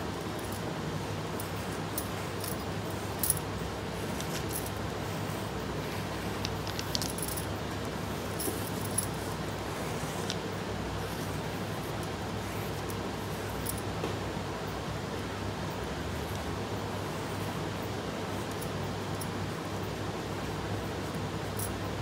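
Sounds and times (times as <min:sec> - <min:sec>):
low room hum: 0:00.0 - 0:22.0
bangles clinking: 0:01.4 - 0:03.5, 0:06.3 - 0:07.6, 0:08.2 - 0:09.4.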